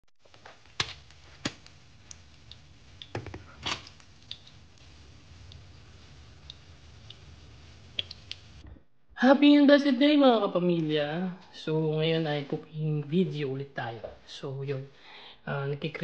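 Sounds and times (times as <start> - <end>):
faint low hum: 0.4 - 9.6.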